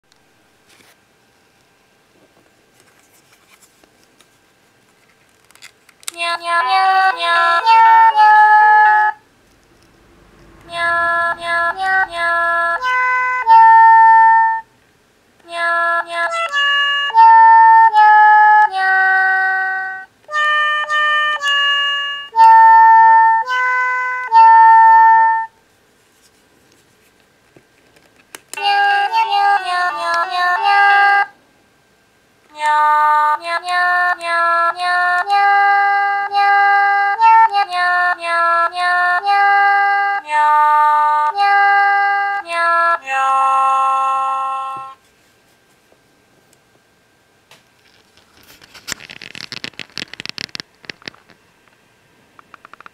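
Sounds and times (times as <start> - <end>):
toy sound chip playing tunes: 20.3 - 25.5, 28.6 - 31.3
faint clicks: 52.4 - 52.9.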